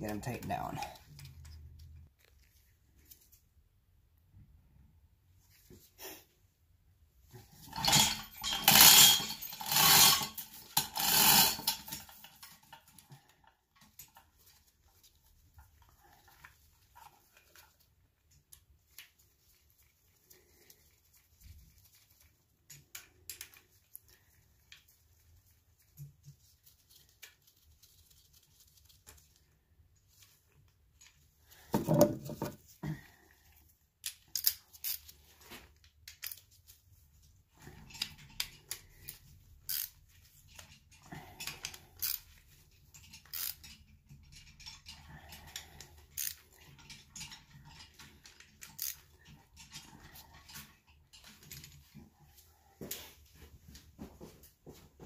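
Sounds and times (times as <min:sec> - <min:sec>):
wrench clicking on metal bolts: 0:39.7 - 0:40.0, 0:41.6 - 0:42.3, 0:43.0 - 0:45.0, 0:46.1 - 0:47.6, 0:48.2 - 0:49.0.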